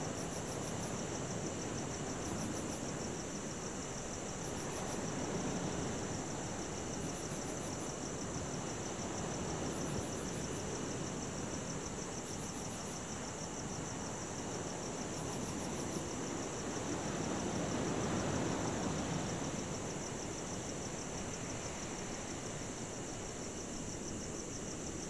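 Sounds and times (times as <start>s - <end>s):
crickets chirping: 0.0s - 25.0s
high-pitched insect trill: 2.2s - 14.3s.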